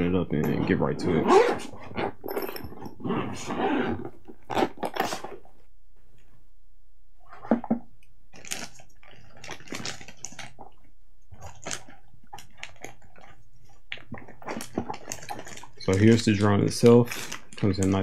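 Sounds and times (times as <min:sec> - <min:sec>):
plastic wrapping crinkling: 0:08.3 - 0:10.6, 0:11.4 - 0:18.0.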